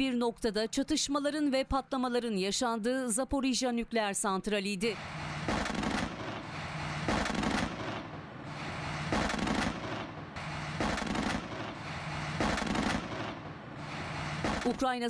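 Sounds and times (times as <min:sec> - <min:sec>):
gunfire bursts with echo: 0:05.0 - 0:14.9.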